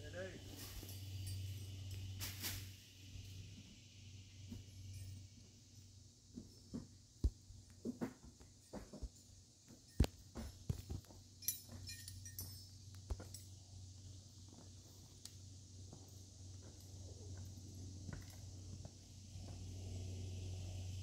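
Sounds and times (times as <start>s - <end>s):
faint high hiss: 0.0s - 6.6s.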